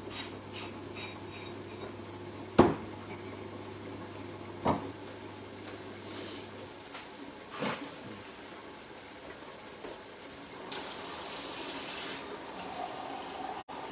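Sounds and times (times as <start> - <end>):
low hum of pots cooking: 0.0 - 13.9
kitchenware knocks: 2.6 - 2.8.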